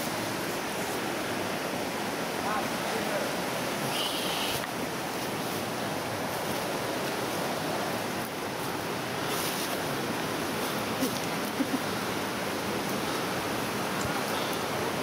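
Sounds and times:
dry brush rustling: 8.5s - 11.7s.

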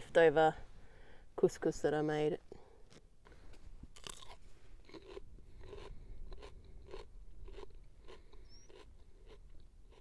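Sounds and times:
person chewing crunchy cucumber: 2.8s - 10.0s.

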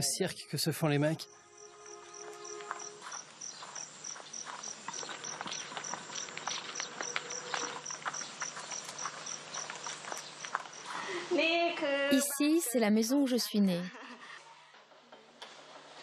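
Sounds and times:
insect chirping in rapid pulses: 1.2s - 11.0s.

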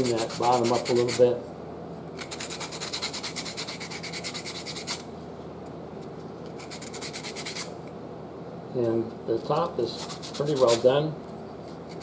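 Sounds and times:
sandpaper rubbing wood: 0.0s - 1.2s, 2.3s - 5.0s, 10.0s - 10.8s.

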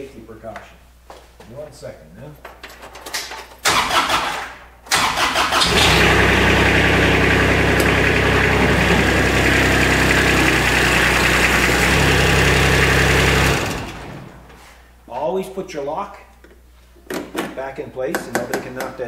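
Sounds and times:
starter cranking engine: 3.7s - 14.3s
diesel engine running: 5.6s - 14.6s.

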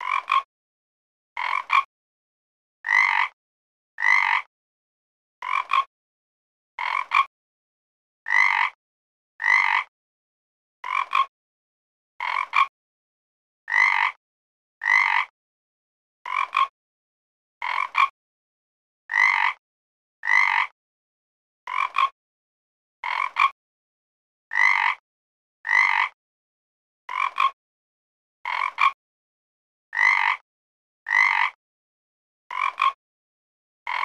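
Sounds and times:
frog croaking: 0.0s - 0.5s, 1.4s - 1.9s, 2.8s - 3.4s, 4.0s - 4.5s, 5.4s - 5.9s, 6.8s - 7.3s, 8.3s - 8.8s, 9.4s - 9.9s, 10.8s - 11.3s, 12.2s - 12.7s, 13.7s - 14.2s, 14.8s - 15.3s, 16.3s - 16.7s, 17.6s - 18.1s, 19.1s - 19.6s, 20.2s - 20.7s, 21.7s - 22.1s, 23.0s - 23.6s, 24.5s - 25.0s, 25.7s - 26.2s, 27.1s - 27.6s, 28.5s - 29.0s, 29.9s - 30.4s, 31.1s - 31.6s, 32.5s - 33.0s.

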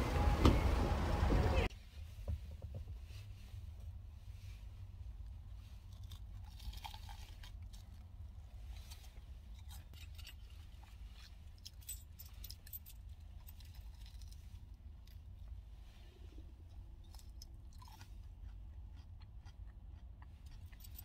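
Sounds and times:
car interior low hum: 0.0s - 5.7s
crunching and chewing: 5.2s - 21.0s.

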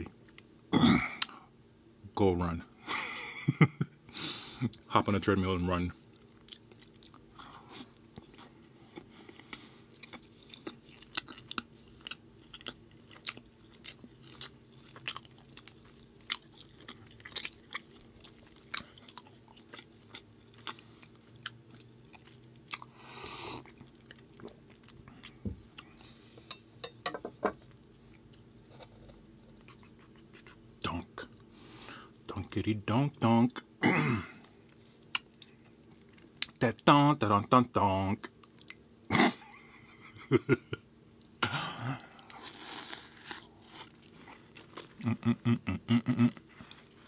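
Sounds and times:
faint steady hum: 0.0s - 47.0s
close chewing with mouth clicks: 6.1s - 26.0s, 29.5s - 30.6s.

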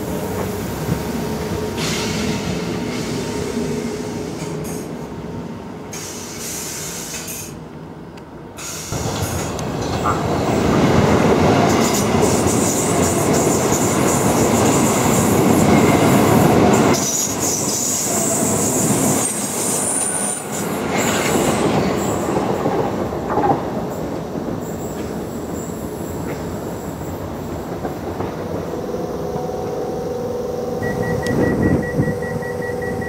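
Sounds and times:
train passing at speed: 0.0s - 33.0s
pulsing high tone: 28.9s - 33.0s.

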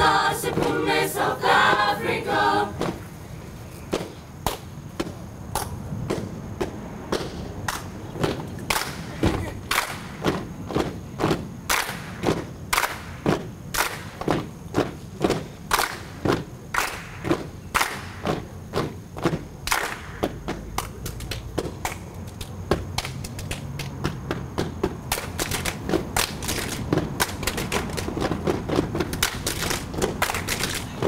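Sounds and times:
hands clapping: 4.0s - 4.7s, 5.5s - 6.3s, 7.1s - 10.3s, 11.7s - 14.4s, 15.3s - 19.0s, 19.6s - 24.2s, 25.1s - 31.0s
feet stamping: 17.2s - 31.0s.

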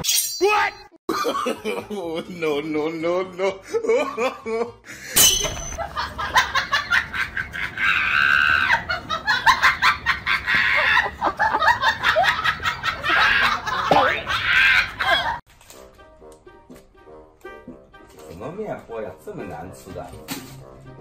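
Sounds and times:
laughter: 1.1s - 2.6s, 3.3s - 5.2s, 5.8s - 15.4s.

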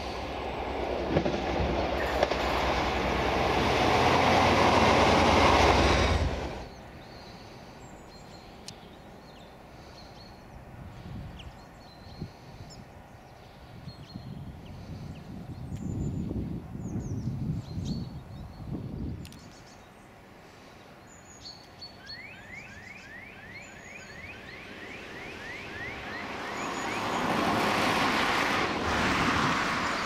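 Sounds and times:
diesel locomotive engine passing: 0.0s - 7.0s, 23.6s - 30.0s.

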